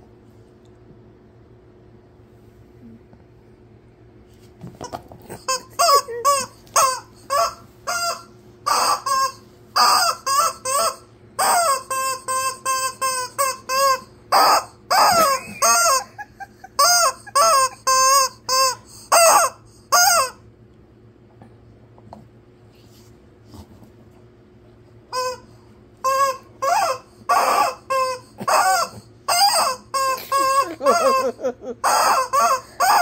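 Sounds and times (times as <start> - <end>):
rubber chicken toy squawking: 5.4 - 20.4, 25.1 - 33.0.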